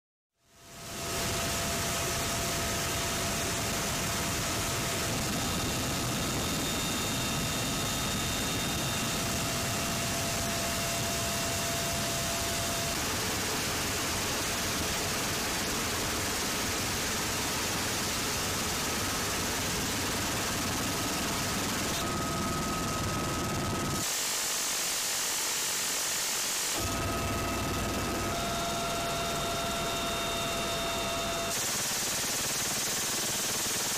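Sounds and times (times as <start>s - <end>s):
helicopter rotor and wind noise: 0.5s - 33.9s
high whining tones: 26.8s - 31.7s.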